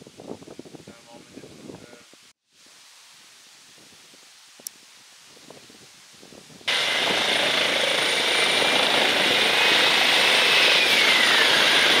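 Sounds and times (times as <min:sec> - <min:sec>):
rustling of grass: 0:01.6 - 0:06.6
helicopter hovering: 0:06.7 - 0:12.0.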